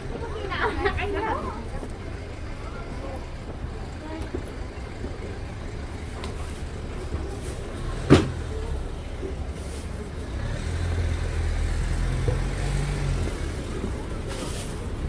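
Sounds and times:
low rumble of road traffic: 0:00.0 - 0:15.0
vehicle passing: 0:10.0 - 0:15.0.

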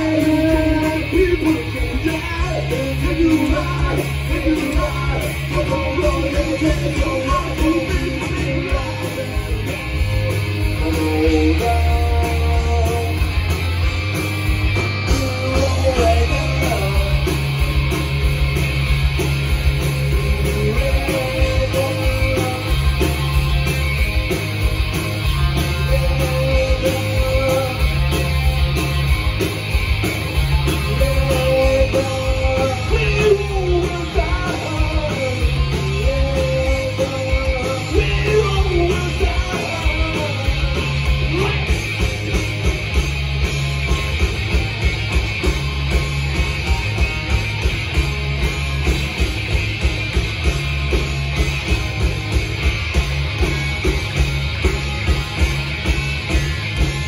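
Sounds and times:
person singing: 0:00.0 - 0:13.3, 0:15.1 - 0:17.6, 0:20.2 - 0:23.2, 0:25.6 - 0:28.3, 0:30.6 - 0:41.8
bass guitar: 0:00.0 - 0:57.0
distorted electric guitars: 0:00.0 - 0:57.0
drums: 0:00.0 - 0:57.0.

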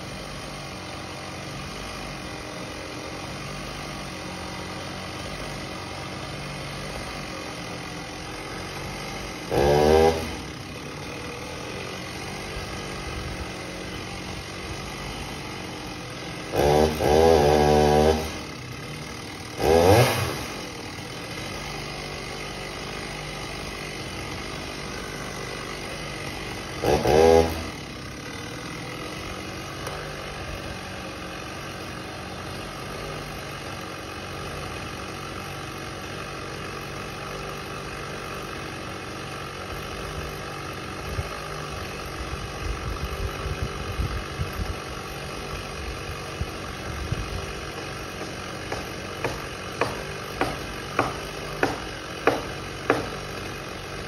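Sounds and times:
engine idling: 0:00.0 - 0:54.0
loud engine burst: 0:09.4 - 0:10.6, 0:16.5 - 0:18.5, 0:19.6 - 0:20.7, 0:26.0 - 0:27.9
sharp knocks: 0:48.2 - 0:53.2.

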